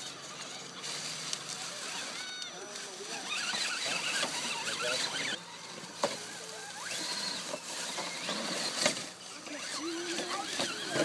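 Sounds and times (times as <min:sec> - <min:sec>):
electric motor and gears whining: 0:00.0 - 0:11.0.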